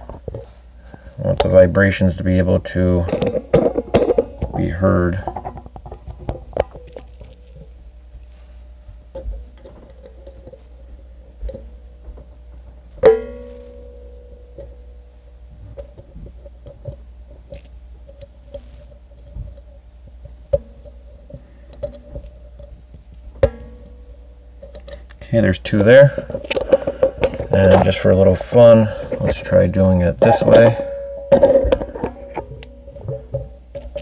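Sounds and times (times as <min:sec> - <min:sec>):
spring wrench ringing: 0:13.0 - 0:15.1, 0:30.3 - 0:34.0.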